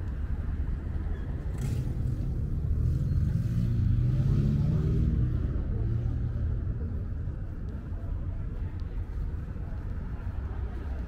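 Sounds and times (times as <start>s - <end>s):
vehicle engine passing: 1.5s - 6.0s.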